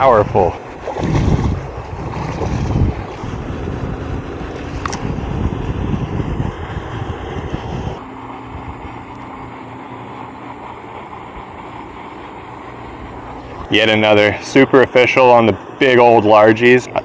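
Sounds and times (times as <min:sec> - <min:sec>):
wind noise on microphone: 0:00.0 - 0:09.0.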